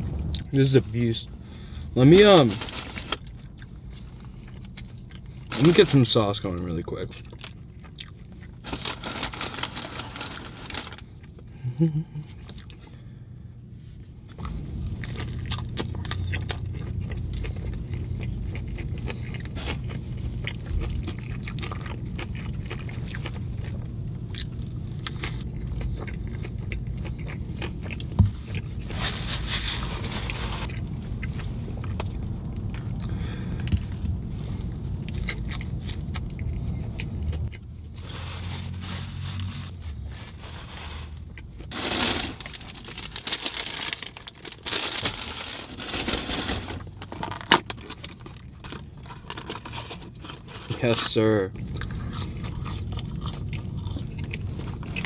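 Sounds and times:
low steady hum: 0:00.0 - 0:55.0
wrapper crackling: 0:02.2 - 0:03.4, 0:08.6 - 0:11.1, 0:41.7 - 0:50.2
man chewing food: 0:03.1 - 0:05.5, 0:07.2 - 0:08.6, 0:12.2 - 0:13.0, 0:14.3 - 0:29.4, 0:30.2 - 0:38.0, 0:51.5 - 0:55.0.

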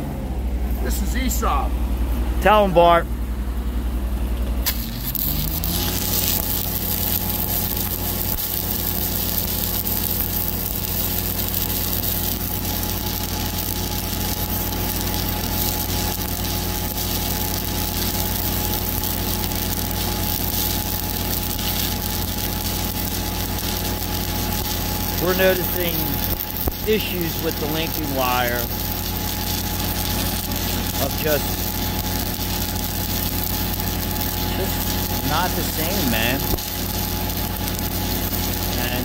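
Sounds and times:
diesel welder engine hum: 0:00.0 - 0:39.0
welding arc crackle: 0:04.6 - 0:39.0.

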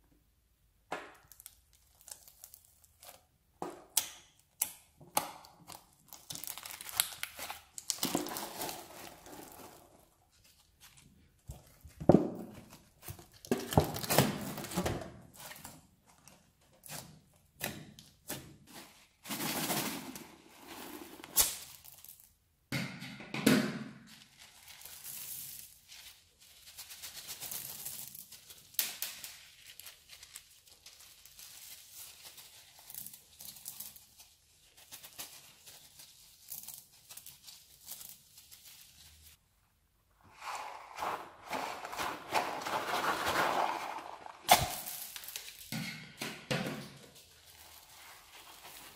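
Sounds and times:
hands squishing foam slime: 0:01.2 - 0:14.7
rubber glove stretching: 0:40.1 - 0:45.6.

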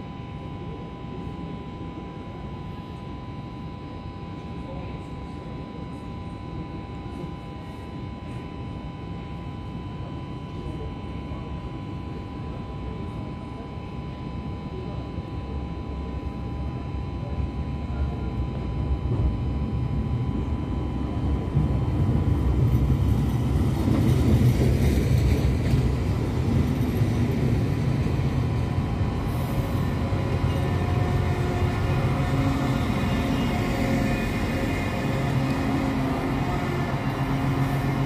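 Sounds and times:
train rumbling past: 0:19.0 - 0:38.0.

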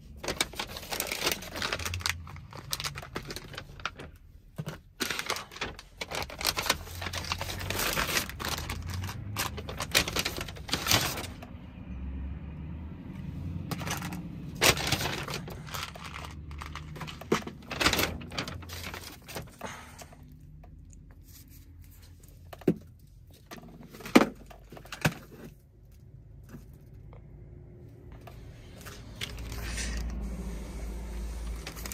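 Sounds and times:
plastic packaging and paper rustling: 0:00.0 - 0:11.6, 0:13.6 - 0:20.4, 0:28.2 - 0:31.9.

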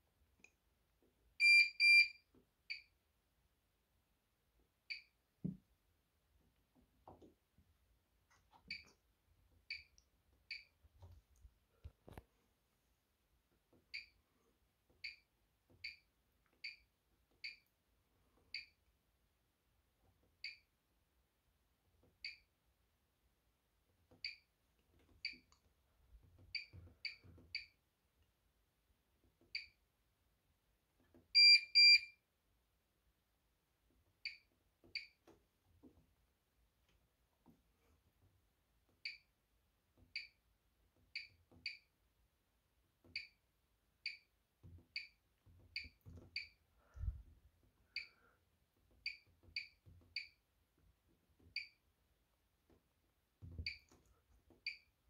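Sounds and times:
longer louder beeps: 0:31.4 - 0:32.1.

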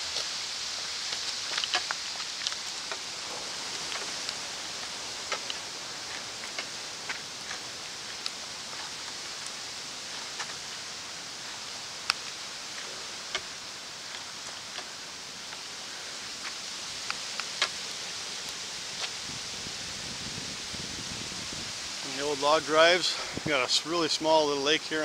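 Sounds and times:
footsteps on trail and rock: 0:00.0 - 0:17.8
rustle of carried gear: 0:00.0 - 0:25.0
steady hiss: 0:00.0 - 0:25.0.

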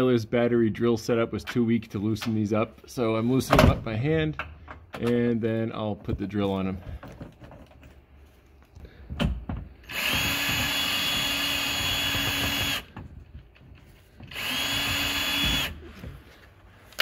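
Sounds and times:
cordless drill whining: 0:09.8 - 0:13.0, 0:14.1 - 0:16.2.

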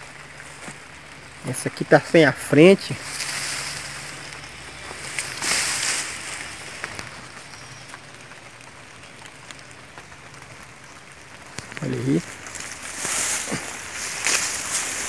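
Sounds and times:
grass and leaves rustling: 0:00.0 - 0:15.0.

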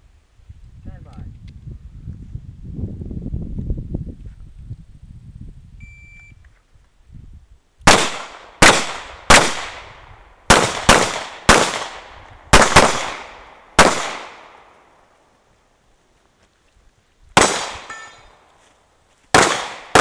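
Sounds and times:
shot timer beep: 0:05.8 - 0:06.4
pistol shots echoing: 0:07.9 - 0:09.9, 0:10.5 - 0:14.8, 0:17.4 - 0:18.2, 0:19.3 - 0:20.0.

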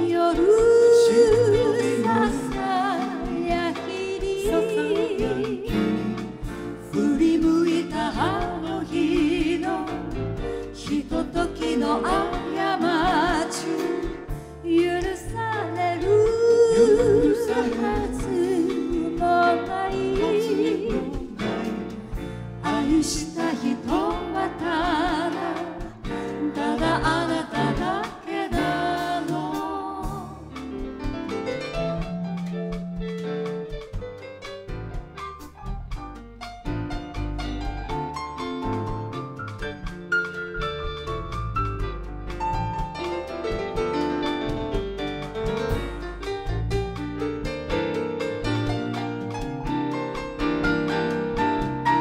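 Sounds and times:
woman singing: 0:00.0 - 0:22.0, 0:22.6 - 0:30.6
live pop band playing: 0:00.0 - 0:52.0.

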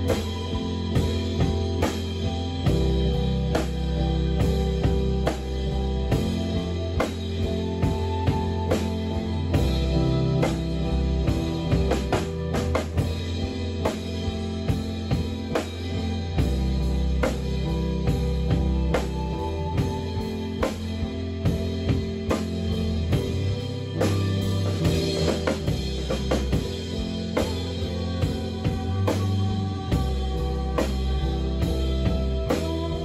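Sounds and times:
band playing live: 0:00.0 - 0:33.0.

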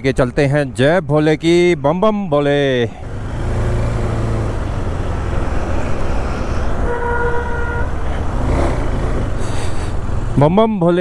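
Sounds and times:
vehicle horn toot: 0:06.8 - 0:08.0.

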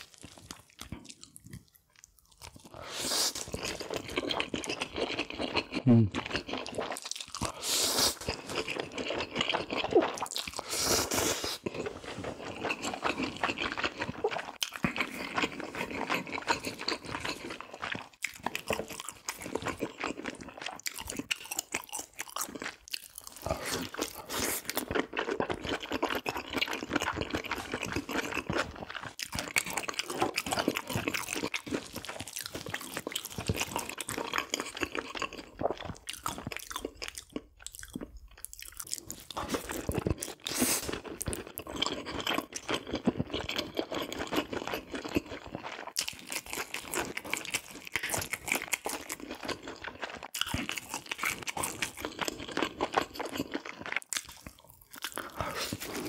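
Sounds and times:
person chewing crunchy food: 0:00.0 - 0:56.0.

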